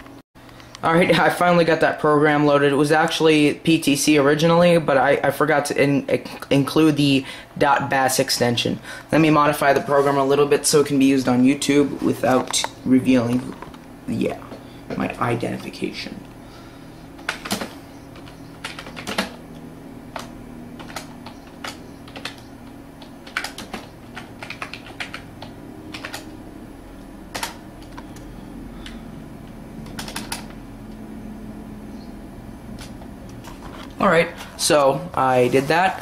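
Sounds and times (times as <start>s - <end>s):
steady low hum: 0.0s - 36.0s
keyboard keys clicking: 17.2s - 19.4s, 20.1s - 26.4s, 27.3s - 30.6s.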